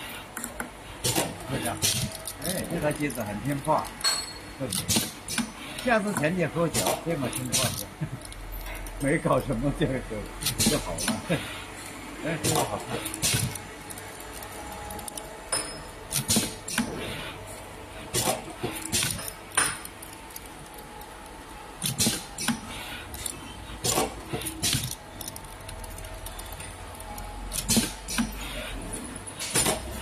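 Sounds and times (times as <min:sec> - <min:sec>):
steady low machine hum: 0:00.0 - 0:30.0
machine metallic clicks and clanks: 0:18.1 - 0:28.4.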